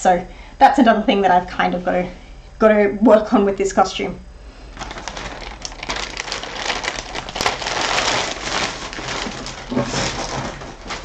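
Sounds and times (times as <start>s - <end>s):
plastic sheet crinkling: 4.7s - 11.0s.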